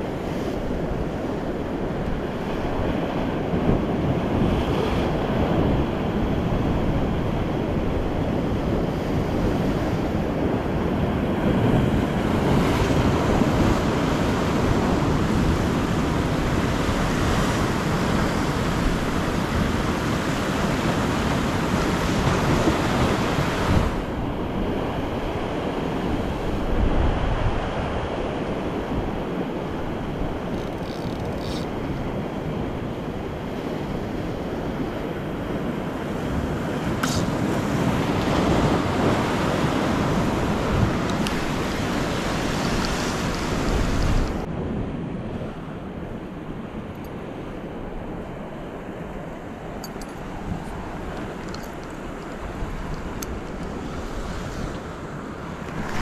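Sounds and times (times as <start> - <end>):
waves washing against rocks: 0.0 - 26.4, 33.9 - 44.5
wind buffeting microphone: 0.0 - 56.0.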